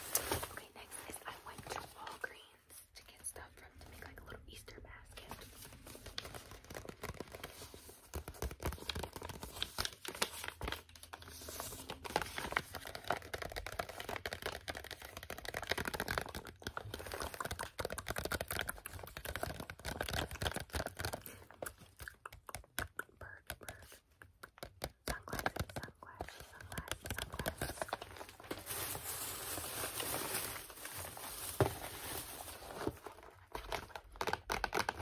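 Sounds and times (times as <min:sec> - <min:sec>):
paper gift bag crinkling: 0:26.8 - 0:33.2.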